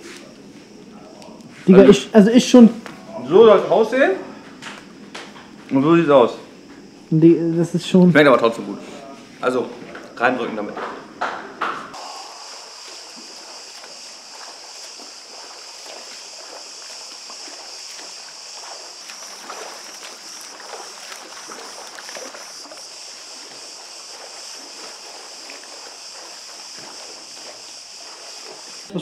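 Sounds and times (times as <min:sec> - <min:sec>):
swimmers splashing: 0:08.6 - 0:29.0
high-pitched hiss: 0:11.8 - 0:29.0.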